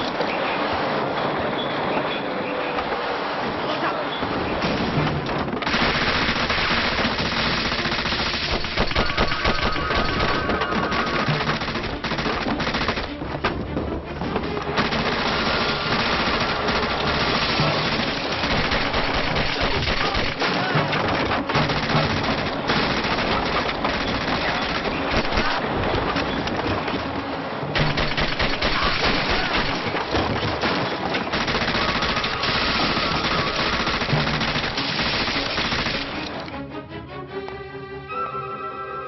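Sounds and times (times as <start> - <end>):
automatic gunfire bursts: 5.6 - 13.2, 14.8 - 20.5, 21.5 - 25.6, 27.8 - 29.9, 31.3 - 36.2
background music: 6.4 - 39.0.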